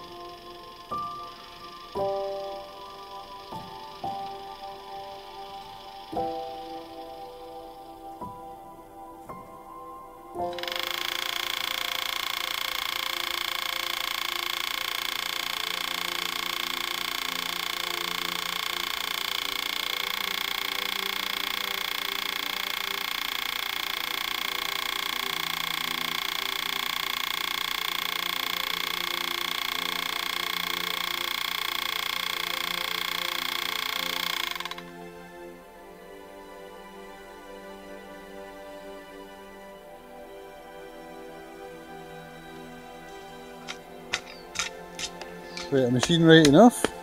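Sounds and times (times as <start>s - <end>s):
machine whining and hissing: 0.0s - 8.3s, 10.4s - 35.5s.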